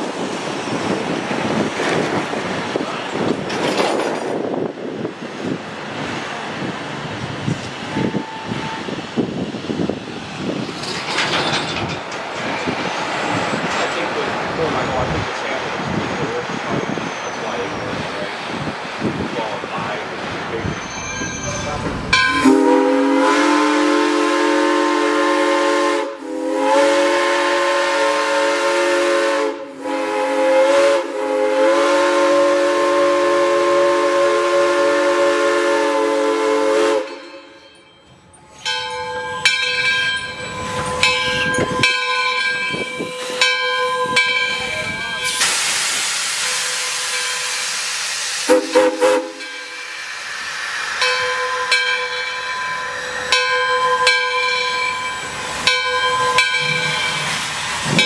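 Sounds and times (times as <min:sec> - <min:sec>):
locomotive clanking: 0:01.8 - 0:04.7, 0:10.5 - 0:18.4, 0:19.4 - 0:23.0
steam locomotive whistle: 0:07.8 - 0:09.1, 0:20.7 - 0:37.6, 0:42.8 - 0:58.0
steam hissing: 0:42.5 - 0:58.0.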